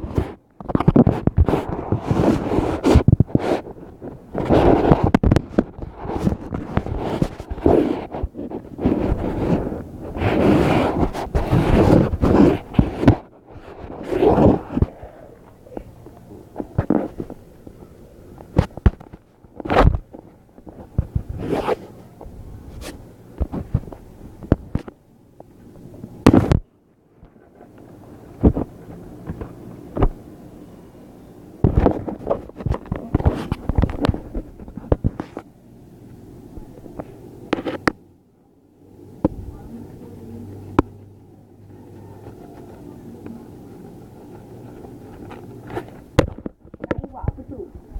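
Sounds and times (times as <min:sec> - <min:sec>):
paper rustling: 0:00.0 - 0:22.1, 0:31.6 - 0:35.5, 0:41.7 - 0:47.9.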